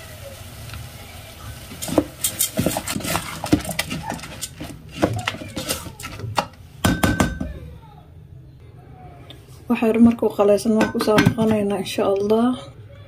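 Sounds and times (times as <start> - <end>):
paddle scraping rice in pot: 1.8 - 6.3.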